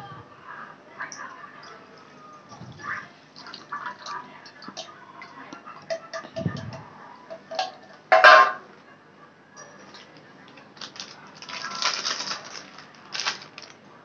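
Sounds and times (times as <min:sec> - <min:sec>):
liquid pouring: 0:01.3 - 0:05.0
pot and strainer knocking on metal: 0:05.9 - 0:08.6.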